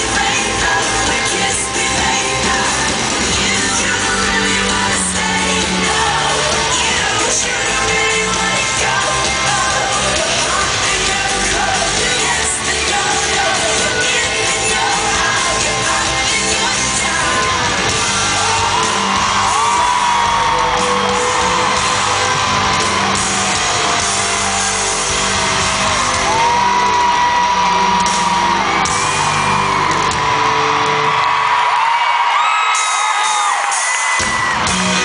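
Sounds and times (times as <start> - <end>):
fans screaming and whooping: 0.0 - 35.0
live pop band with singing: 0.0 - 35.0.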